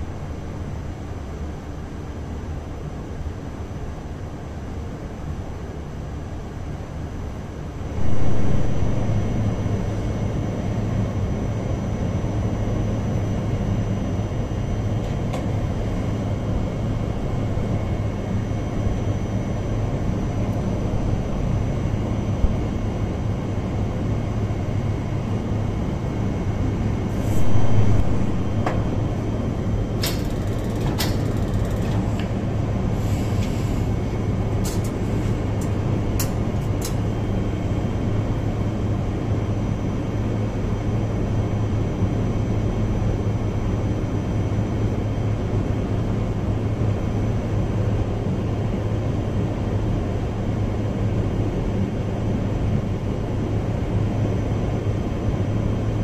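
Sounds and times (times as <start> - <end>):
cabinet blower airflow hum: 0.0 - 1.1, 7.8 - 23.7, 24.9 - 39.0.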